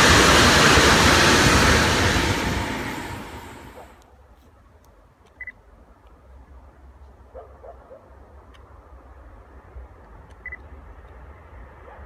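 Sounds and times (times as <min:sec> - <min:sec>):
steady low rumble: 0:00.0 - 0:04.0
dog barking: 0:07.3 - 0:08.1.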